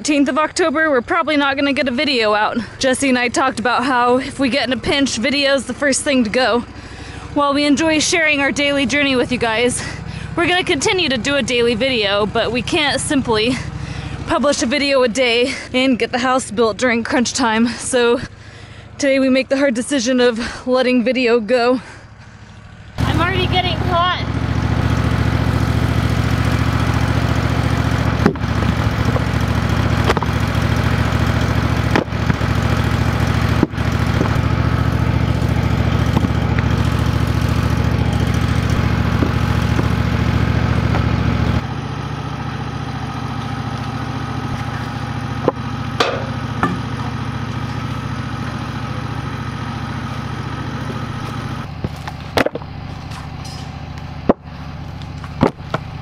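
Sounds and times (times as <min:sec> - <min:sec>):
sawmill engine running: 0:00.0 - 0:56.0
sharp knocks: 0:45.4 - 0:47.0.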